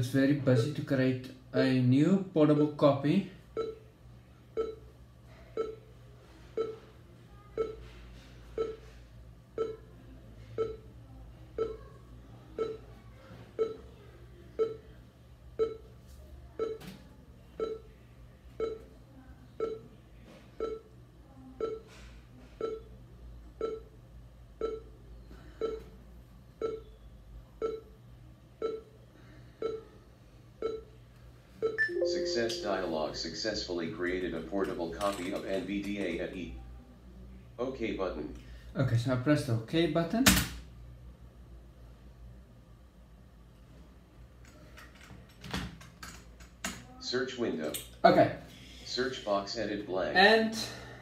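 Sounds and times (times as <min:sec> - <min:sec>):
low steady hum: 0:00.0 - 0:39.8
short repeating beep: 0:31.6 - 0:32.9.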